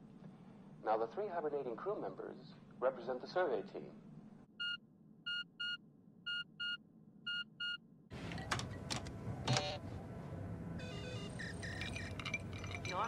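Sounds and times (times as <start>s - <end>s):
monitor beeping: 4.6s - 9.8s, 10.8s - 13.0s
keys clicking: 11.4s - 13.0s.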